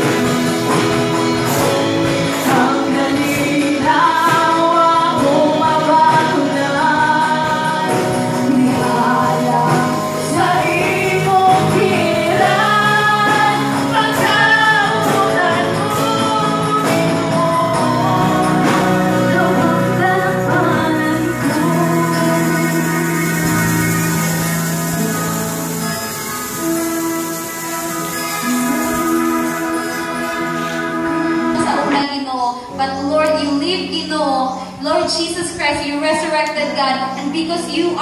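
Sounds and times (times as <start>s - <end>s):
worship band playing: 0.0s - 38.0s
women singing: 2.3s - 24.6s.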